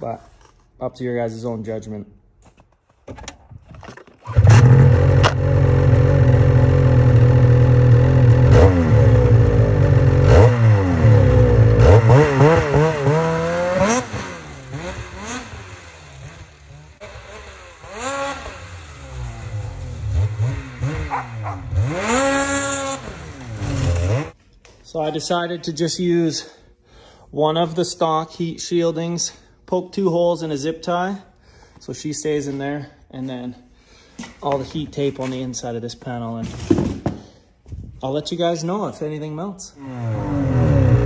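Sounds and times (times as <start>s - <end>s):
snowmobile engine revving: 4.3s - 24.4s, 39.8s - 41.0s.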